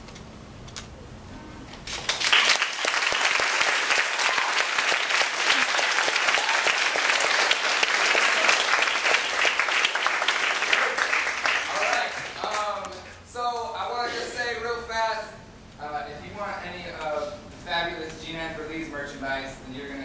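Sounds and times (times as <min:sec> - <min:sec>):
audience applauding: 0:01.8 - 0:13.3.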